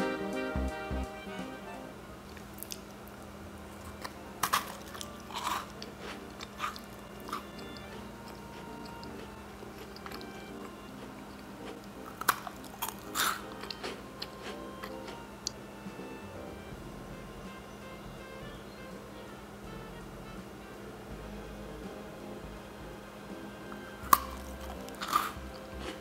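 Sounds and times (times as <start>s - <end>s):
cookie crunching: 2.2s - 15.6s, 23.7s - 26.0s.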